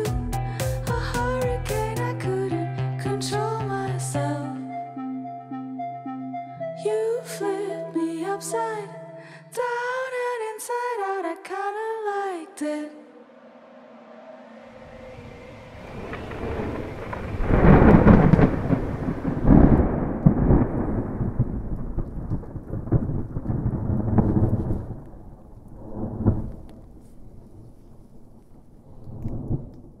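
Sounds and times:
thunder rumbling: 0:14.7 - 0:30.0
rain: 0:14.8 - 0:30.0.

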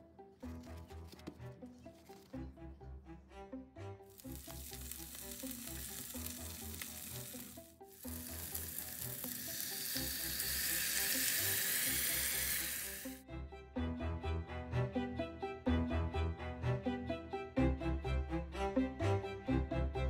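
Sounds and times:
butter sizzling in a saucepan: 0:04.1 - 0:13.2.

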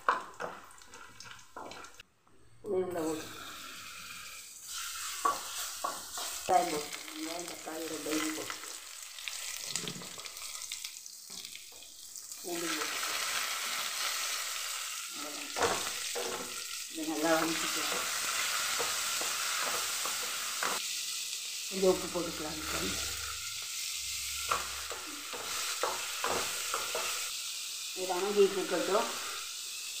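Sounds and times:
spatula knocking pan: 0:00.0 - 0:01.9, 0:05.2 - 0:06.4, 0:24.4 - 0:27.2
frying sizzle: 0:00.0 - 0:02.0, 0:03.0 - 0:30.0
wooden spatula scraping a pan: 0:05.0 - 0:06.5.

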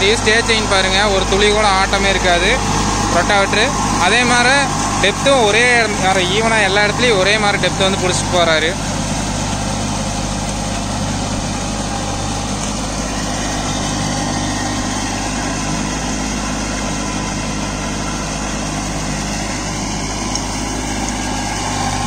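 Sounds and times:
rotary tiller churning mud: 0:00.0 - 0:22.0
tractor diesel engine running: 0:00.0 - 0:22.0.

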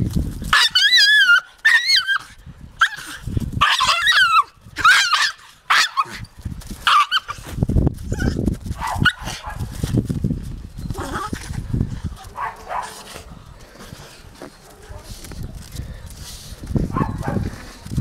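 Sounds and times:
dog yelping and whining: 0:00.5 - 0:06.3, 0:06.9 - 0:07.4.

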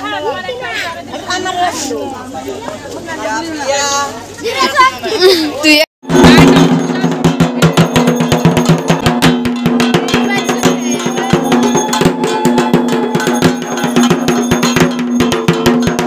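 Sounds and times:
loud music with fast drumbeats: 0:06.0 - 0:16.0.

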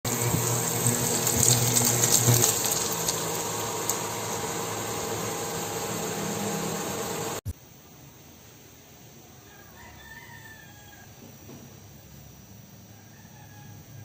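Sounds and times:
food sizzling in oil in a pan: 0:00.0 - 0:07.4.

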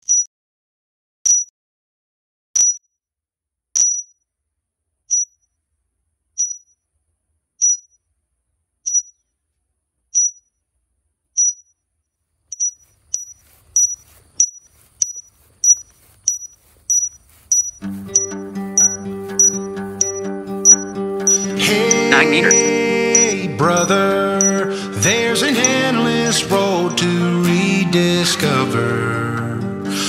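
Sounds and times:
high-pitched ping: 0:18.2 - 0:23.4.

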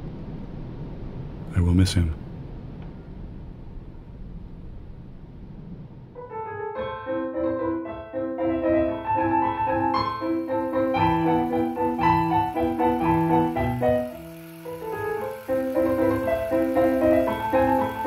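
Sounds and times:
piano melody: 0:06.1 - 0:18.0.

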